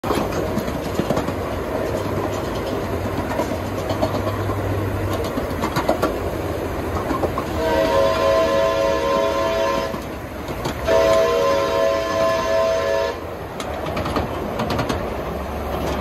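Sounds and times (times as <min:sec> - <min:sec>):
train wheels clattering on rails: 0:00.0 - 0:16.0
steam chime whistle: 0:07.6 - 0:10.0, 0:10.8 - 0:13.2.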